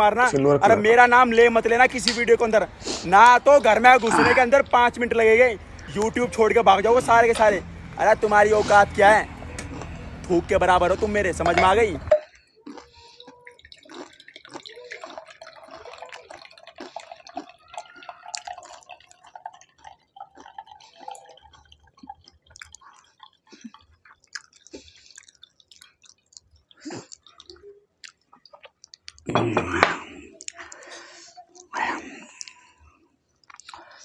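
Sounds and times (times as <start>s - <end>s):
liquid trickling into glass: 9.8s - 29.8s
glass clinks: 11.4s - 12.6s.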